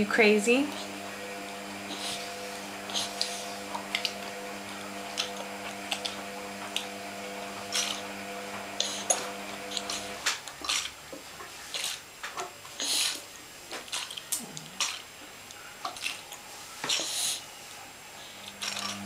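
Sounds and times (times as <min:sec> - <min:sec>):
toddler sucking and slurping: 0:01.8 - 0:06.2, 0:07.7 - 0:08.1, 0:08.7 - 0:10.9, 0:11.6 - 0:12.0, 0:12.7 - 0:13.3, 0:16.9 - 0:17.4
toddler breathing: 0:01.9 - 0:03.6.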